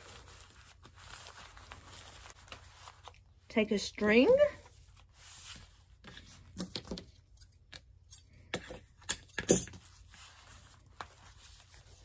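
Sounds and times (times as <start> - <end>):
plastic tablecloth rustling: 0.0 - 7.2, 9.7 - 12.0.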